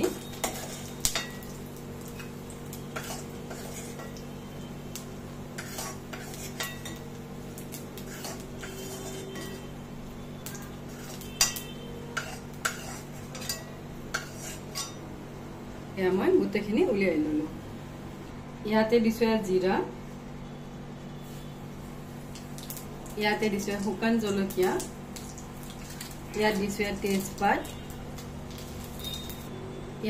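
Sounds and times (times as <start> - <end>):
spoon scraping a metal pan: 0.0 - 1.5, 2.9 - 4.2, 5.5 - 7.1, 8.0 - 9.7, 10.4 - 15.0.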